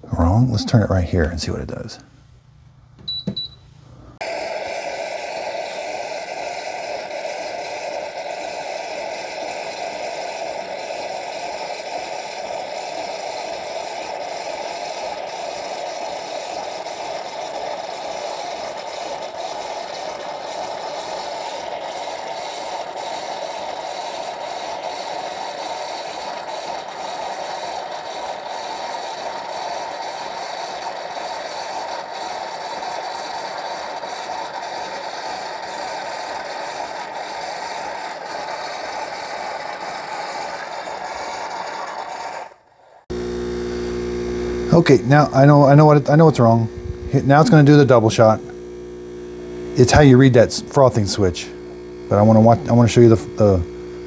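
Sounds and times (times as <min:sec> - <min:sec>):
short machine beep: 0:03.1 - 0:03.6
milk frother running: 0:04.2 - 0:54.0.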